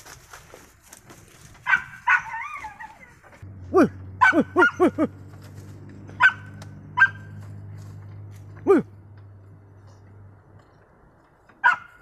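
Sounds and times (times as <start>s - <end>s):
dogs barking: 1.6s - 3.1s, 3.7s - 5.1s, 6.1s - 7.4s, 11.6s - 12.0s.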